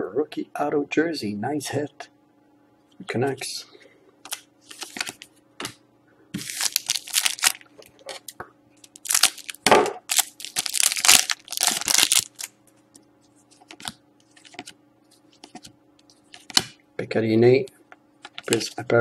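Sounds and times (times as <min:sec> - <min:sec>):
foil wrapper crinkling: 0:04.3 - 0:05.3, 0:06.4 - 0:07.7, 0:08.8 - 0:12.5
scissors cutting foil pack: 0:09.0 - 0:12.5.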